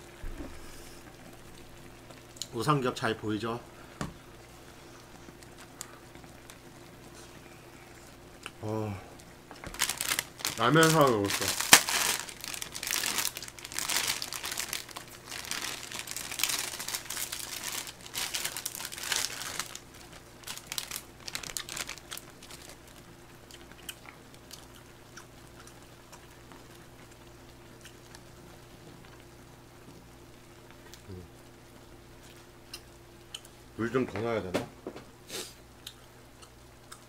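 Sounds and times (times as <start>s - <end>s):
plastic packet crinkling and tearing: 9.6s - 24.7s.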